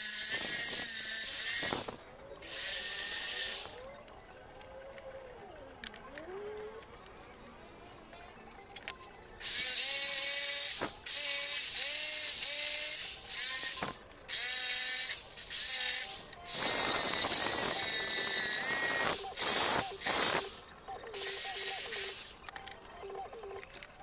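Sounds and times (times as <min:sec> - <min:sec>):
jigsaw cutting wood: 0:00.0 - 0:03.8, 0:09.4 - 0:20.6.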